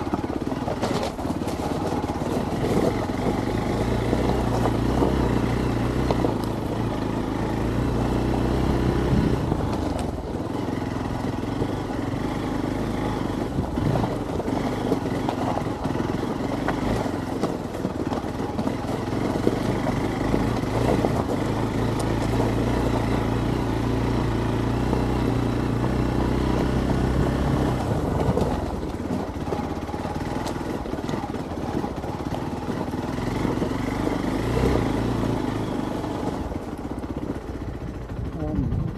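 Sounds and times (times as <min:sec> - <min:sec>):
knocks and clatter from rocks: 0:00.0 - 0:05.3
motorcycle engine running: 0:00.0 - 0:38.9.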